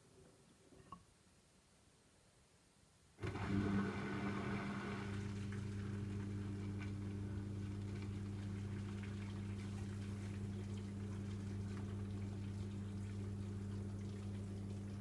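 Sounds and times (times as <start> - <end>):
washing machine pump humming: 3.2 - 15.0.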